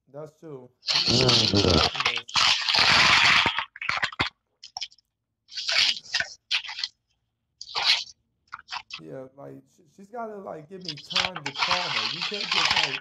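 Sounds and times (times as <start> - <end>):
plastic bottle crinkling: 0.9 - 6.9, 7.6 - 9.0, 10.8 - 13.0.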